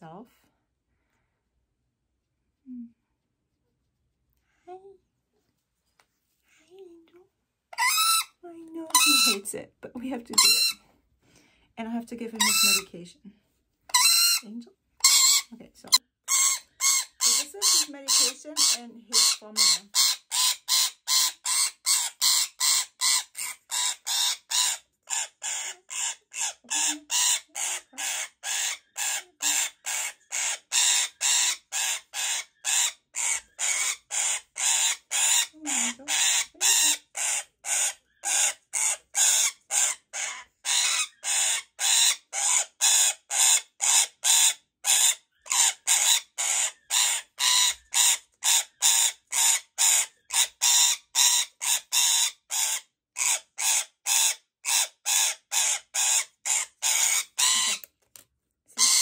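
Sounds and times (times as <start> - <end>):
lorikeet screeching: 7.8 - 8.3, 9.0 - 9.4, 10.3 - 10.8, 13.9 - 14.4, 15.0 - 57.9, 58.8 - 59.0.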